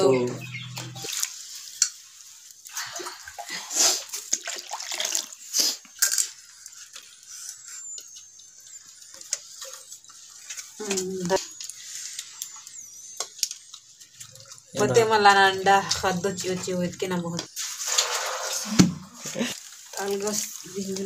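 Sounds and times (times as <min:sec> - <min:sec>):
water splashing in a wok: 0:01.0 - 0:05.8, 0:17.6 - 0:18.9.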